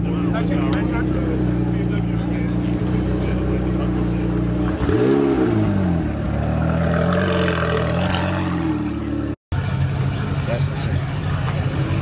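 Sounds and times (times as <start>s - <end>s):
car engine running: 0.0s - 12.0s
engine revving: 0.2s - 9.4s.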